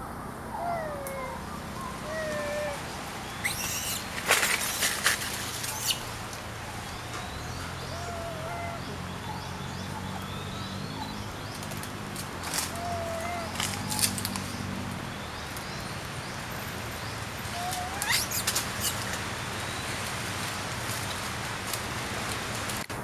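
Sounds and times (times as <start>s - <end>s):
leaves rustling: 0.5s - 23.0s.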